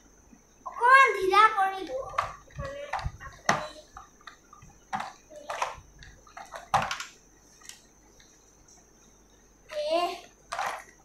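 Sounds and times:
plastic toy parts clattering: 4.9 - 7.8, 9.7 - 11.0.

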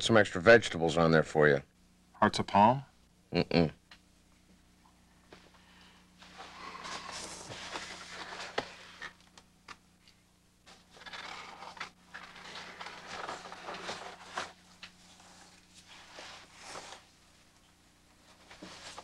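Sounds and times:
faint steady hum: 0.0 - 19.0
rustling and scraping: 6.2 - 9.3, 10.7 - 17.2, 18.2 - 19.0.

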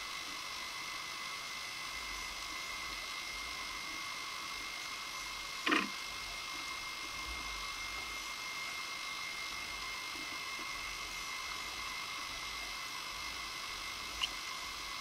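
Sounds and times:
thin high whine: 0.0 - 15.0.

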